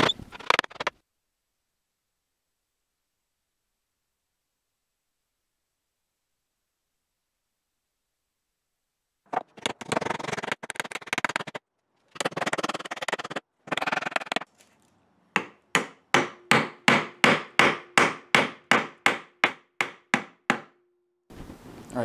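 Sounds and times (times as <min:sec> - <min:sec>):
hammer striking wooden peg: 0:09.3 - 0:14.5, 0:15.3 - 0:20.8.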